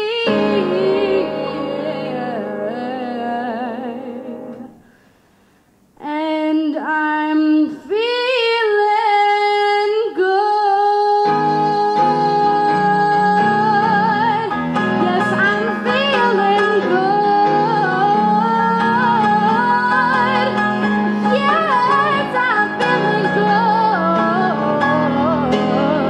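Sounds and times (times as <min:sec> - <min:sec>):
woman singing with vibrato: 0:00.0 - 0:04.9, 0:06.0 - 0:26.0
grand piano chords: 0:00.1 - 0:04.8, 0:11.3 - 0:26.0.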